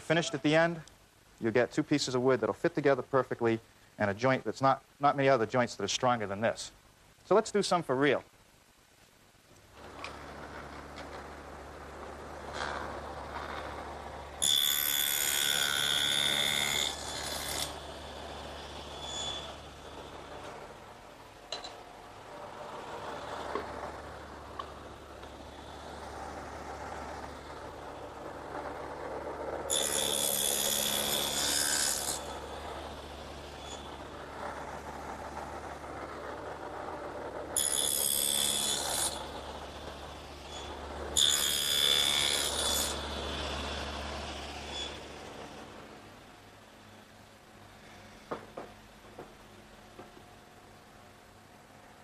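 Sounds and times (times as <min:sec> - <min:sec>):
saw cutting wood: 0:12.5 - 0:19.6, 0:29.7 - 0:34.0, 0:37.6 - 0:39.8, 0:40.4 - 0:45.0
table saw running: 0:29.7 - 0:32.6.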